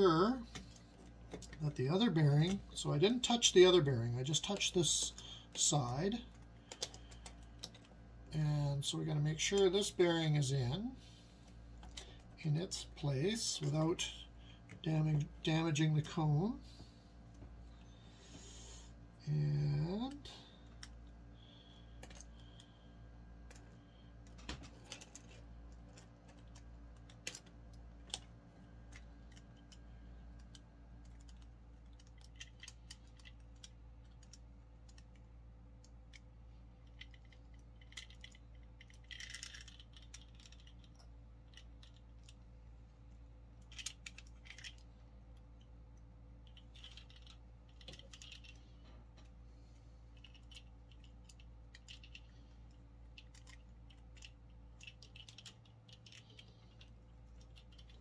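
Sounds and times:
steady low hum: 0:00.0 - 0:58.0
small metal parts clicking: 0:06.3 - 0:07.9, 0:21.8 - 0:22.7, 0:23.5 - 0:28.3, 0:30.4 - 0:42.4, 0:43.6 - 0:45.7, 0:46.4 - 0:49.3, 0:50.2 - 0:58.0.

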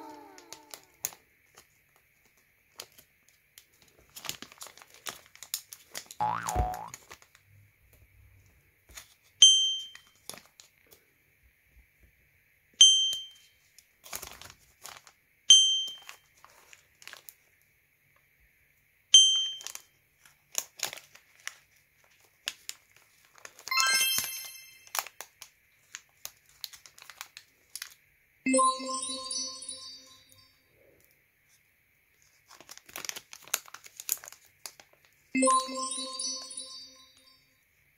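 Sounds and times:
plastic wrapper crinkling: 0:00.2 - 0:07.4, 0:09.9 - 0:10.8, 0:14.0 - 0:15.2, 0:15.9 - 0:17.5, 0:19.6 - 0:23.7, 0:24.8 - 0:28.0, 0:32.2 - 0:35.3
many-toned chime: 0:23.7 - 0:25.0, 0:28.5 - 0:30.6, 0:35.4 - 0:37.5
short bright dings: 0:35.4 - 0:37.4.

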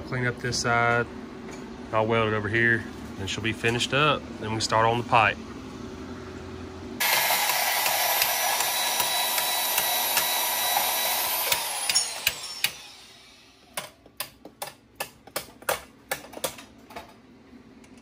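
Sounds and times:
band saw cutting steel pipe: 0:07.0 - 0:13.6
sharp knocks and clicks: 0:13.8 - 0:17.1.

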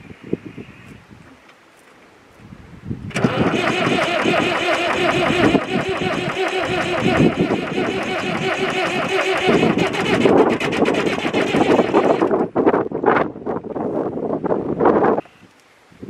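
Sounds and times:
diesel engine cranking: 0:03.1 - 0:12.6.

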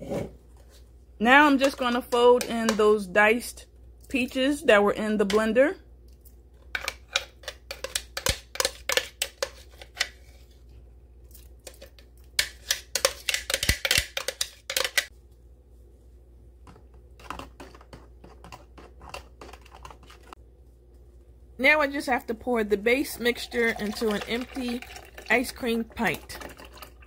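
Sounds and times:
fork scraping plastic jar: 0:06.8 - 0:10.5, 0:17.2 - 0:20.4.

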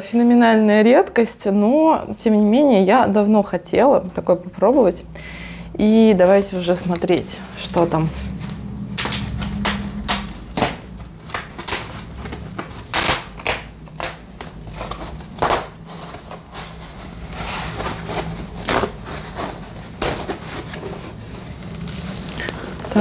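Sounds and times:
foam wrap rustling and crinkling: 0:07.4 - 0:23.0.

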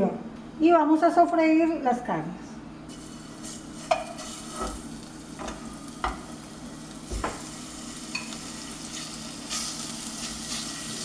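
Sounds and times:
meat sizzling in hot oil: 0:02.9 - 0:11.0.

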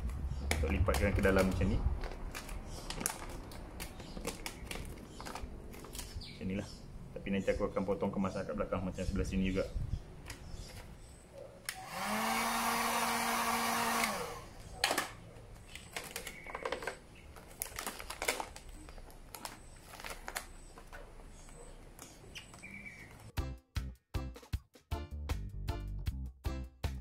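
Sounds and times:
vinyl film crinkling: 0:00.9 - 0:06.2, 0:15.6 - 0:23.3
hot-air gun blowing: 0:11.7 - 0:14.6.

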